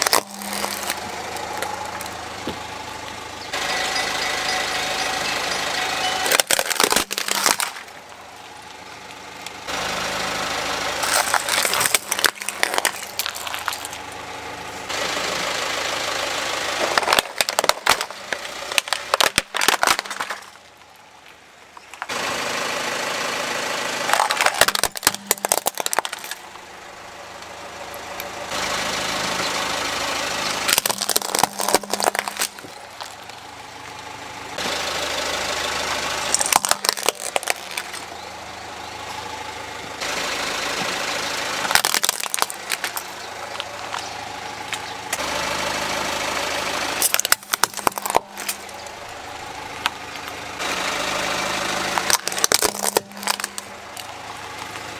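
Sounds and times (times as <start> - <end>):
plastic toy crunching: 0.0 - 2.6, 3.6 - 9.9, 11.0 - 14.2, 16.8 - 22.2, 24.0 - 26.6, 30.6 - 33.4, 36.2 - 38.2, 41.6 - 45.3, 47.0 - 50.8, 51.4 - 54.2
car engine running: 0.0 - 54.9.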